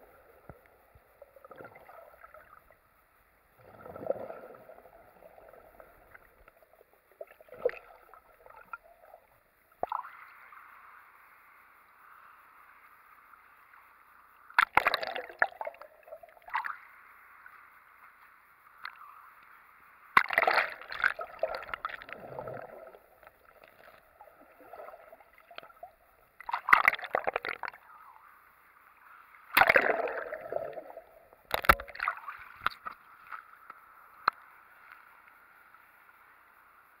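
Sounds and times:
faint steady hiss: 0.0 - 37.0
seawater splashing: 20.2 - 27.8.

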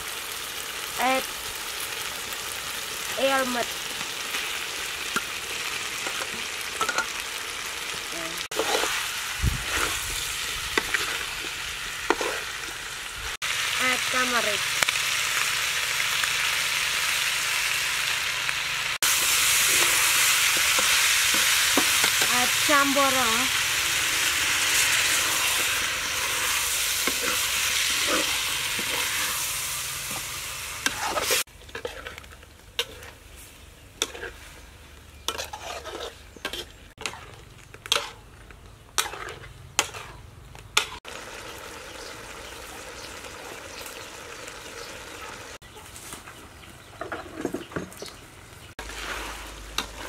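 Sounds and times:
liquid sizzling in hot wok: 0.0 - 34.5, 40.8 - 45.6, 48.8 - 50.0
metal ladle scraping wok: 8.5 - 12.9, 19.0 - 33.4, 34.0 - 34.6, 35.2 - 38.3, 39.0 - 41.0, 48.8 - 50.0.

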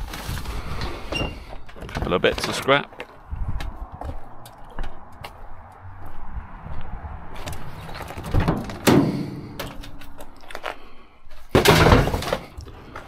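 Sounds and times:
rattle and scrape: 7.3 - 13.0
scrap metal clattering: 7.9 - 9.9, 11.4 - 12.6.

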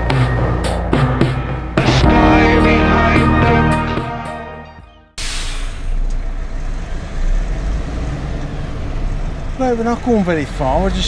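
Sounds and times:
music: 0.0 - 5.2.

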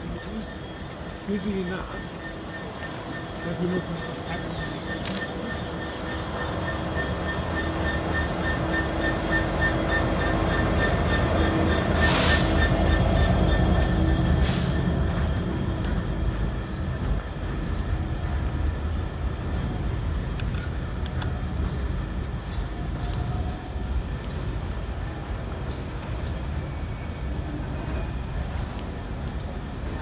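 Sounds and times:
diesel locomotive engine: 0.0 - 30.0
wagons rumbling over rails: 0.0 - 30.0
short hissing bursts: 12.0 - 12.6.

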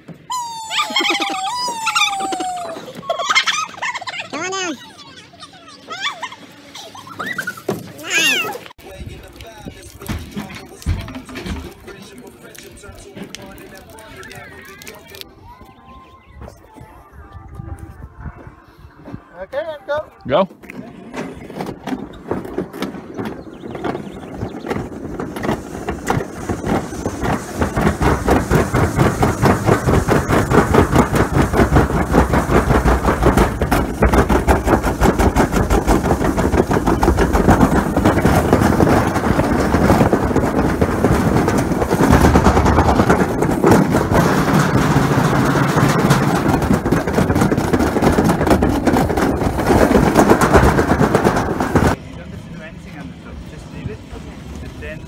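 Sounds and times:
sled wheels rattling on metal track: 0.0 - 15.0, 21.0 - 55.0.

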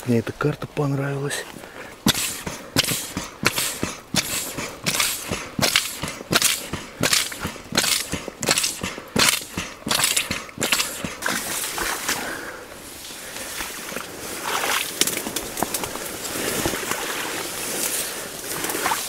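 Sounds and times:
air pump strokes: 2.0 - 12.5.

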